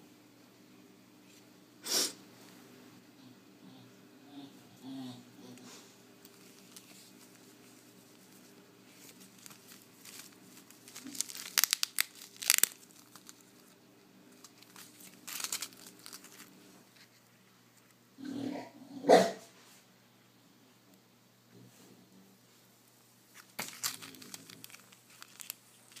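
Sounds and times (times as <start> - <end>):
plastic bags crinkling: 6.3 - 16.6, 23.4 - 26.0.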